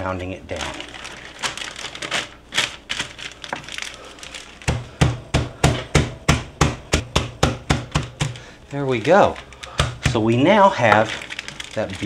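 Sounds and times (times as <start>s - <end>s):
plastic bag crinkling: 0.0s - 5.0s, 8.2s - 12.0s
skillet pounding meat thuds: 4.6s - 11.2s.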